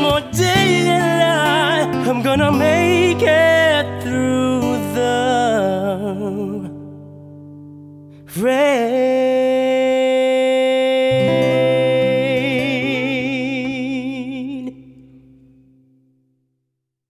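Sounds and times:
man singing long high note: 0.0 - 6.8, 8.3 - 14.9.

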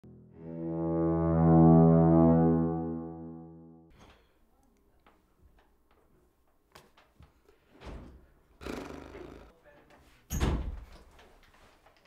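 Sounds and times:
sustained low musical tone: 0.0 - 3.9.

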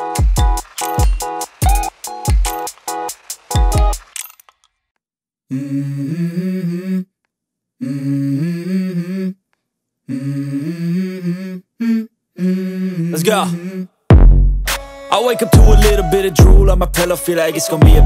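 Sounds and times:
hummed vocal melody: 5.5 - 7.2, 7.8 - 9.4, 10.0 - 14.0, 15.1 - 18.0.

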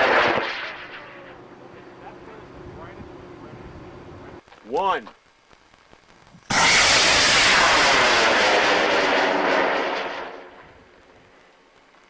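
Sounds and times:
rocket motor roar: 6.5 - 10.8.

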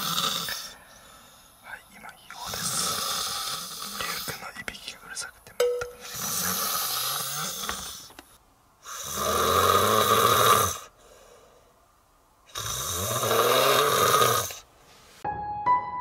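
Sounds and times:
person snoring: 0.0 - 0.8, 2.4 - 4.5, 6.0 - 8.1, 8.8 - 11.4, 12.5 - 14.6
quiet breaths: 0.0 - 15.2.

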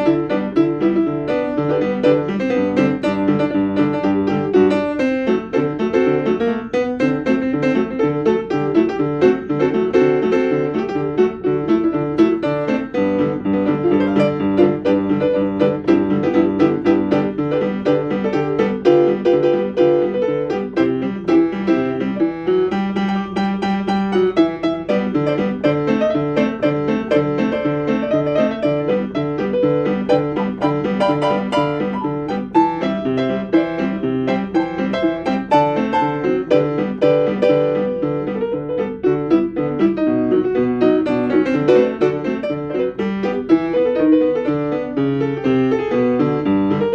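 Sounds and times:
piano tune on keyboard: 0.0 - 46.9.

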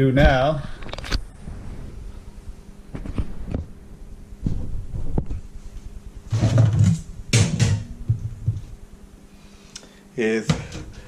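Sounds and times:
rustling and scraping: 0.7 - 8.8.

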